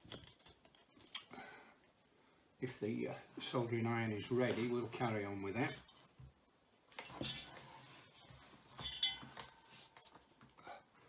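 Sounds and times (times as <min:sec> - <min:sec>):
metal holder clinking: 0:08.8 - 0:09.5.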